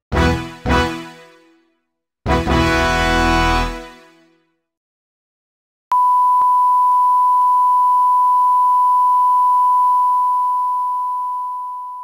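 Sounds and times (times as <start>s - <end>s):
steady sine tone: 5.9s - 12.0s.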